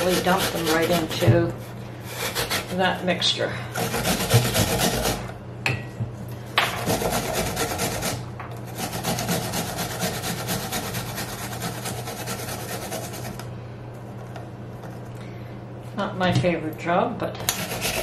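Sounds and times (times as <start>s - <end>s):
apple rasping on metal grater: 0.0s - 5.4s, 6.8s - 13.5s, 17.4s - 18.0s.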